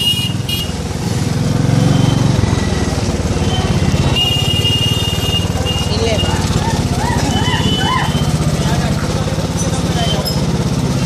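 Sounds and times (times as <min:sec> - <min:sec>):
vehicle horn: 0:00.0 - 0:00.8, 0:03.6 - 0:06.4
motorbike engine running: 0:00.0 - 0:11.0.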